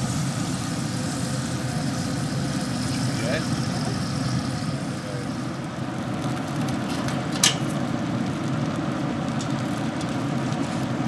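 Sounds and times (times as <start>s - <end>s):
grill fan and fire rumbling: 0.0s - 11.0s.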